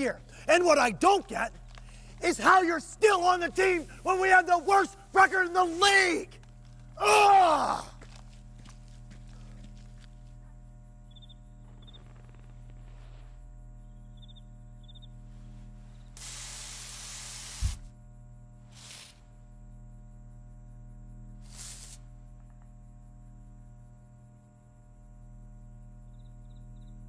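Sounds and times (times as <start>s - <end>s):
faint cricket chirps: 0.0s - 27.0s
steady low hum: 0.0s - 27.0s
aerosol can spraying hiss: 16.1s - 17.9s, 18.7s - 19.3s, 21.4s - 22.2s.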